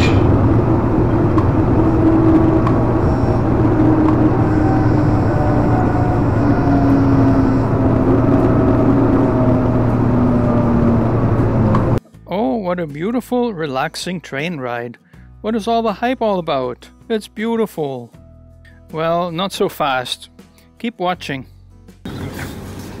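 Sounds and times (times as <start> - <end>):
train interior rumble and hum: 0.0 - 12.0
train motor whine: 0.0 - 12.0.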